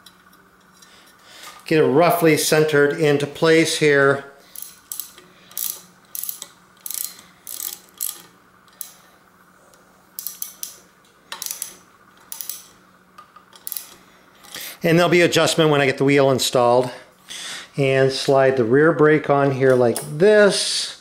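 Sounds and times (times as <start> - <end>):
socket ratchet clicking: 4.6 - 9.0, 10.2 - 12.7, 13.4 - 14.6.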